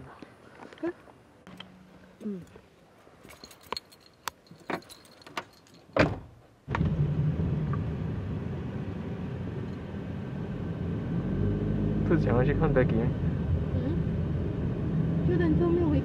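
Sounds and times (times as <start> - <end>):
car door shutting: 6.0 - 7.1
car engine running hum: 6.7 - 16.0.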